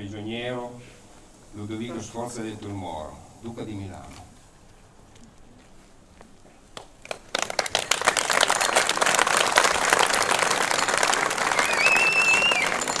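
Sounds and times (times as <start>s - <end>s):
crowd applauding: 6.8s - 13.0s.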